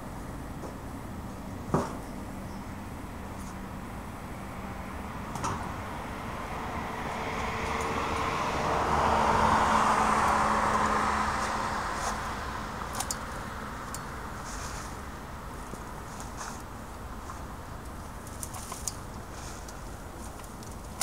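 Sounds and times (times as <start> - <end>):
car passing: 4.5 - 14.8.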